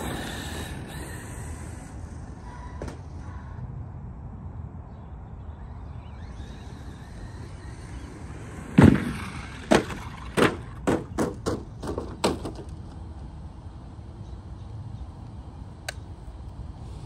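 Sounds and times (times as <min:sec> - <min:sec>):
toy truck thudding on ground: 0:08.7 - 0:12.7
toy truck tumbling knocks: 0:08.7 - 0:12.7.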